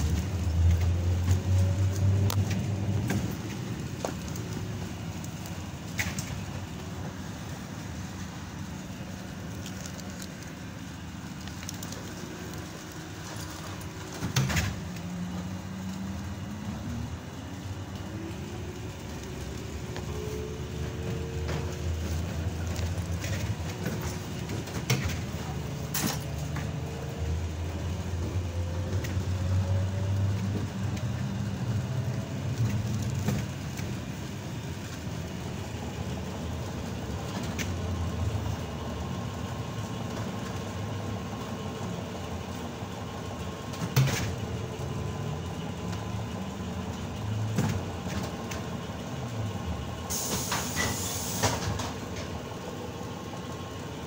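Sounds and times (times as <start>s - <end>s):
trolleybus rumble: 0.0s - 54.0s
short hiss: 50.1s - 51.8s.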